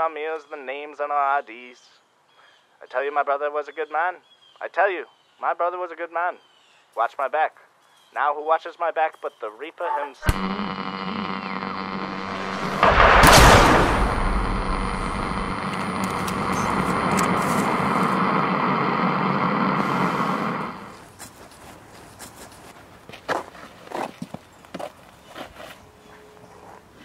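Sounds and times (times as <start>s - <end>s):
steady droning tone: 10.3s - 21.0s
pistol shot: 12.0s - 18.2s.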